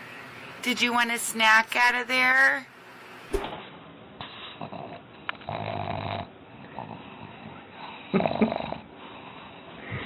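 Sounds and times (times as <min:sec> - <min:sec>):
dog snoring through nose: 0:04.3 - 0:10.0.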